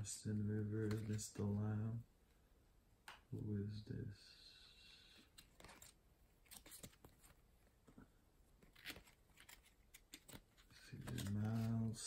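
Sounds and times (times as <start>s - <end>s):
cards rustling: 0.7s - 1.6s, 5.2s - 12.0s.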